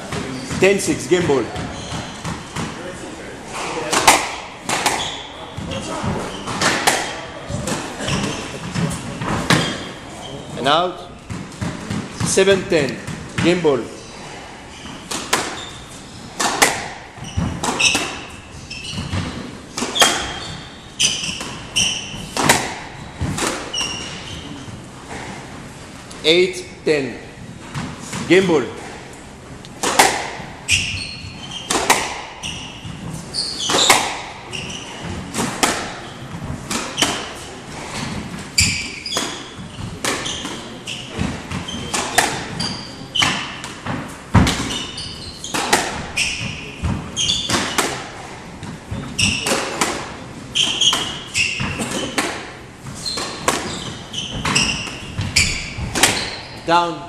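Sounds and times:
shoes squeaking on wooden floor: 0.0 - 26.4, 27.6 - 56.8
squash ball smacks: 3.6 - 9.9, 15.1 - 15.6, 16.3 - 18.2, 21.1 - 23.7, 29.7 - 30.9, 31.7 - 37.4, 38.0 - 44.9, 45.5 - 56.4.

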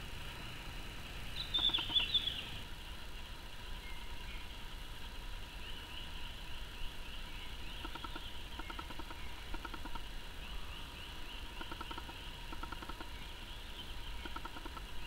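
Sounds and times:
birds chirping: 1.3 - 2.6, 5.6 - 15.0.

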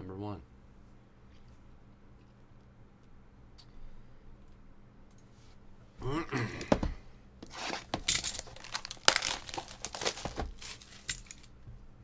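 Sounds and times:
plastic wrap crinkling and tearing: 7.5 - 11.5.

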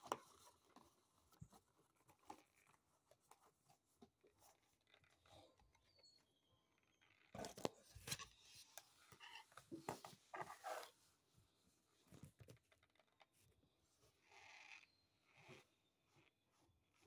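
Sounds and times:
faint rustling and clicking: 12.0 - 13.6.

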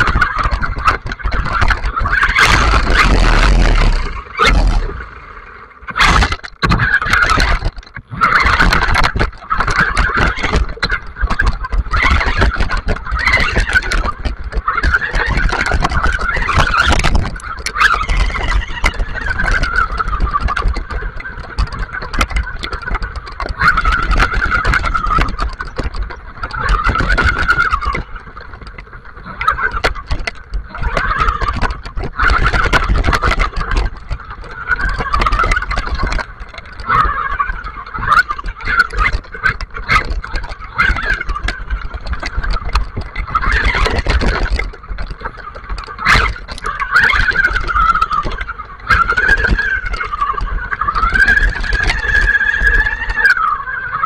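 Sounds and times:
tyres rumbling over gravel: 1.9 - 5.2
electric motor whine: 2.4 - 5.4.

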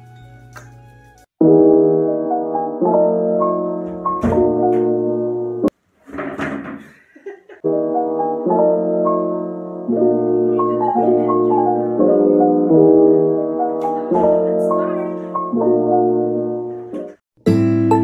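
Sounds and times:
gentle keyboard music: 0.0 - 5.7, 7.6 - 18.0.

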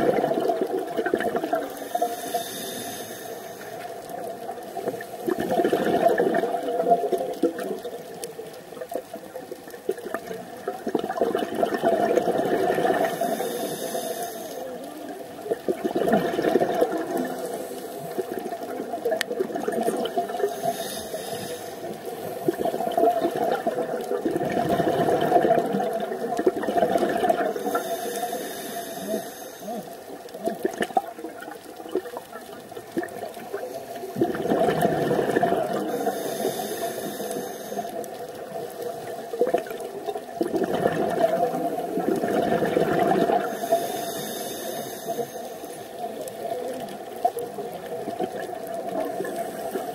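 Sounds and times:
exhaled air bubbling: 0.0 - 49.9
regulator inhalation hiss: 1.7 - 5.2, 13.0 - 14.8, 20.3 - 22.6, 27.5 - 30.0, 35.8 - 39.2, 43.4 - 46.2.

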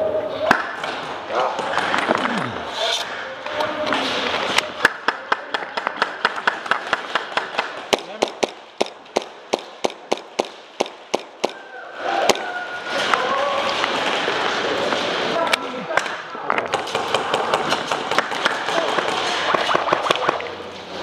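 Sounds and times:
airsoft pistol shots: 7.9 - 11.6.

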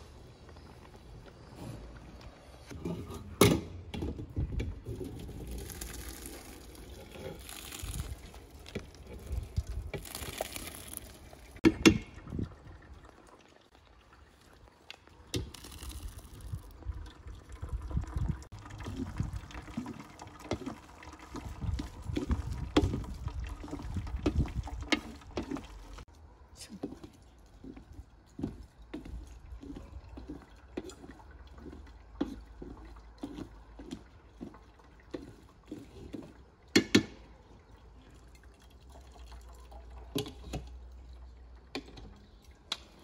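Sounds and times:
juice pouring and splashing: 0.0 - 43.0
wooden spoon scraping colander: 4.8 - 11.4.

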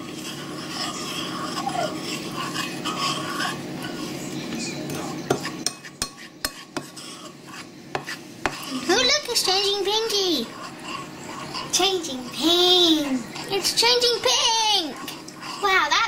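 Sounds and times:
fork scraping ceramic bowl: 0.0 - 16.0.

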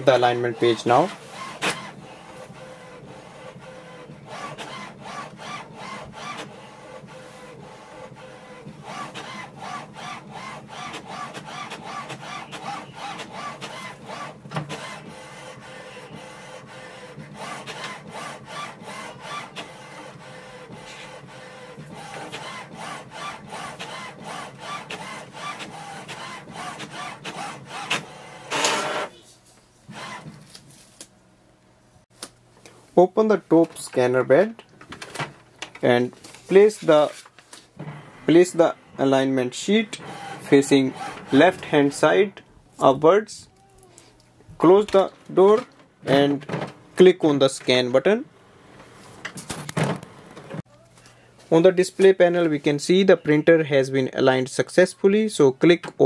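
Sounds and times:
printer motor hum: 0.0 - 29.2, 29.9 - 30.4, 37.8 - 42.6
printer whirr: 0.0 - 29.2, 29.9 - 30.4, 36.4 - 42.5
printer carriage shuttling: 3.6 - 15.2, 39.7 - 42.1, 49.2 - 50.6.

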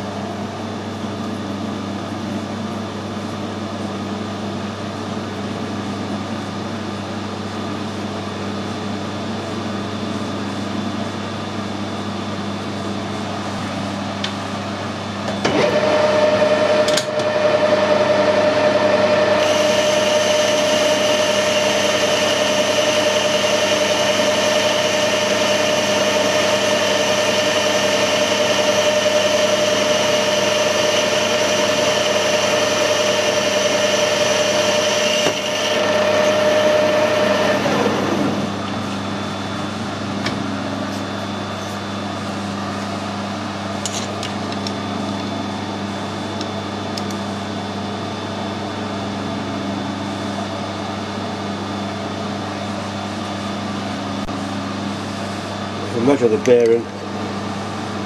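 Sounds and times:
lathe machine hum: 0.0 - 58.0
boring bar cutting whine: 15.3 - 42.0
high-pitched metal cutting: 17.5 - 37.2.

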